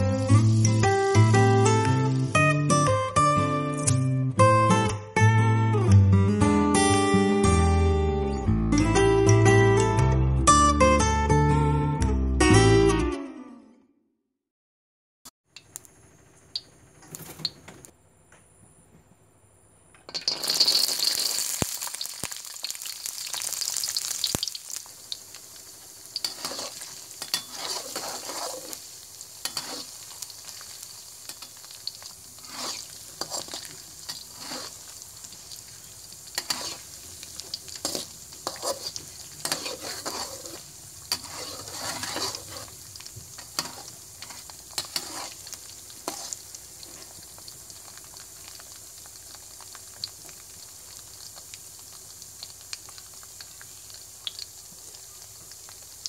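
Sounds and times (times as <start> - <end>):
peanuts sizzling in hot oil: 0.0 - 2.4, 20.1 - 56.0
metal spoon scraping wok: 26.2 - 30.6, 31.2 - 35.4, 36.3 - 47.2.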